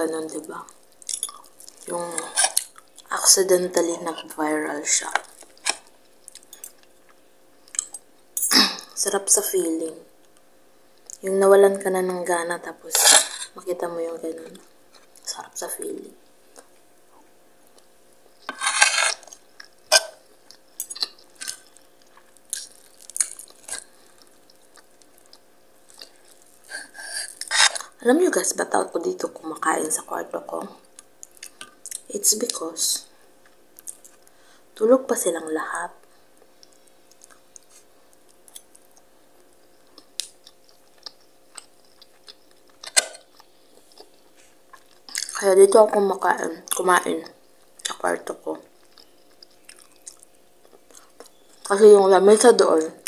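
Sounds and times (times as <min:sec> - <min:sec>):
chewing: 0:01.0 - 0:03.1, 0:05.2 - 0:08.0, 0:18.5 - 0:28.0, 0:30.9 - 0:32.1, 0:33.4 - 0:34.3, 0:36.0 - 0:45.4, 0:48.6 - 0:51.7.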